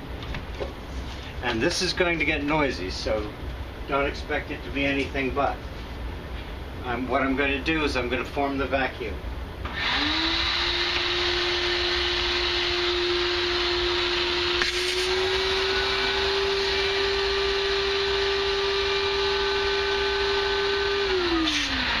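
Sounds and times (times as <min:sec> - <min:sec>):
shop vac whining: 0:09.6 - 0:22.0.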